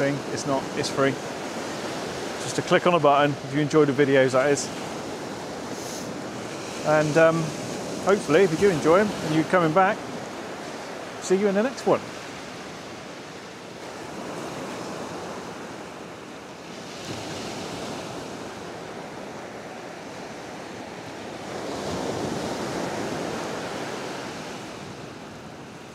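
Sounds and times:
sea waves breaking: 0:00.0 - 0:25.9
wind: 0:00.0 - 0:25.9.

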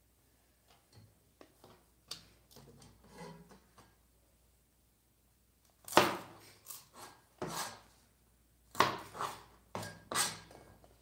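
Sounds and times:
cleaver chopping on plastic board: 0:08.7 - 0:10.4.

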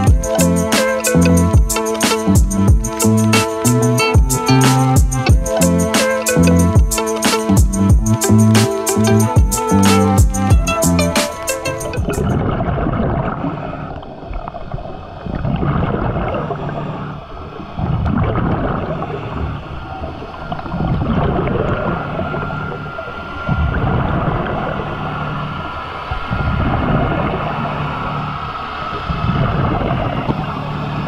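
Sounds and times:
underwater boat engine hum: 0:00.0 - 0:06.8, 0:07.7 - 0:31.0
diver's bubbles gurgling: 0:11.6 - 0:28.3.

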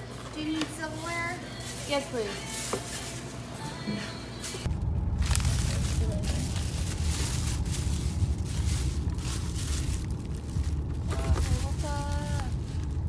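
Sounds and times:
plastic bag rustling: 0:00.0 - 0:13.0
low rumble: 0:04.6 - 0:13.0.

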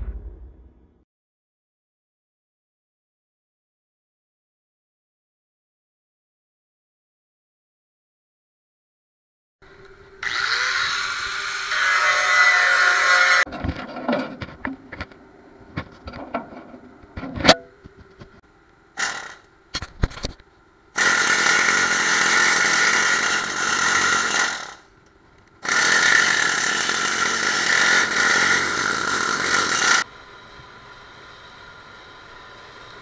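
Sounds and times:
loud power tool running: 0:10.2 - 0:13.5, 0:19.0 - 0:19.5, 0:21.0 - 0:24.9, 0:25.6 - 0:30.1
metal taps and clanks: 0:15.8 - 0:18.3.

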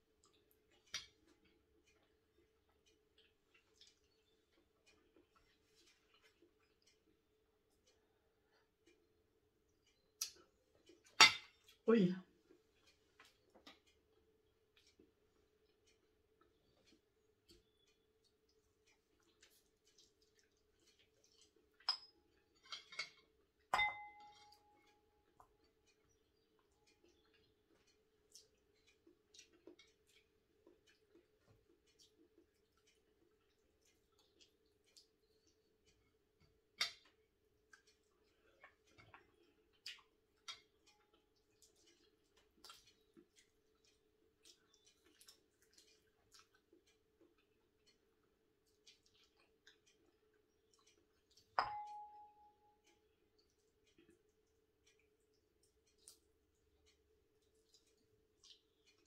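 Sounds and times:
faint irregular clicks: 0:00.0 - 0:11.8, 0:12.4 - 0:59.0
person chewing: 0:00.0 - 0:11.8, 0:12.4 - 0:51.6, 0:52.8 - 0:59.0
faint steady hum: 0:00.0 - 0:59.0
wet smacks of eating by hand: 0:00.1 - 0:11.8, 0:12.4 - 0:23.7, 0:24.3 - 0:51.6, 0:52.8 - 0:59.0
ceramic dishes clinking: 0:21.8 - 0:24.4, 0:51.6 - 0:52.3
ringing ceramic knock: 0:23.8 - 0:24.3, 0:51.6 - 0:52.3.

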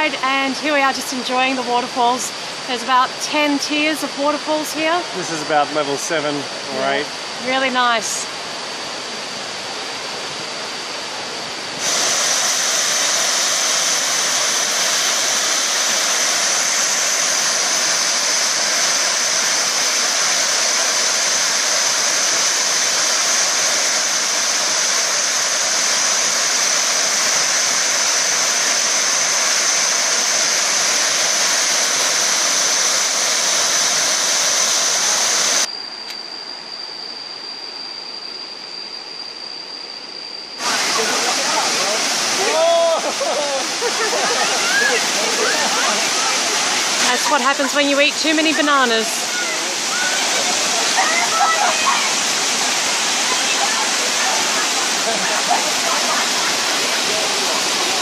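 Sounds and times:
thin high whine: 0:00.0 - 0:58.0
waterfall rushing: 0:10.1 - 0:35.7, 0:40.6 - 0:58.0.

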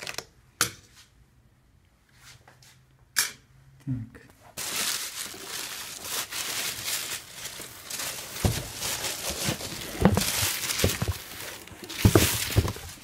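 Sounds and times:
cardboard rubbing and scraping: 0:07.5 - 0:13.0.

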